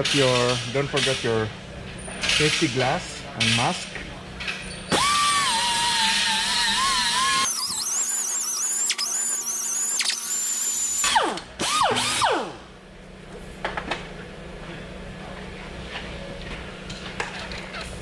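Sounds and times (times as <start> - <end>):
air die grinder whining: 4.9 - 12.6.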